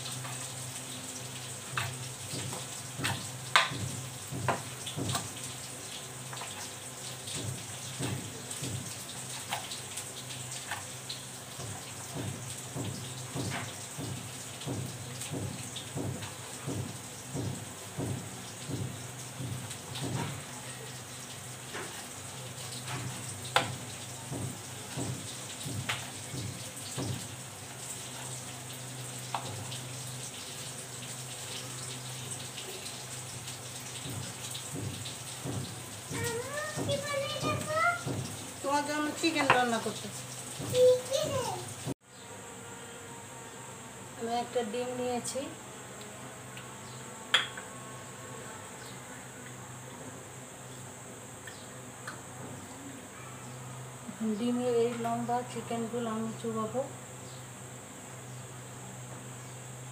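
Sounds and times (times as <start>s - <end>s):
steady hiss and low hum: 0.0s - 59.9s
knife knocking on cutting board: 2.4s - 5.2s.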